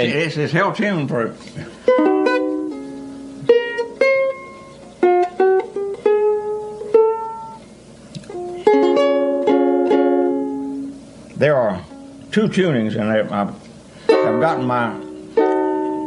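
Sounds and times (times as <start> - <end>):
ukulele plucking and strumming: 1.5 - 11.0, 14.0 - 16.0.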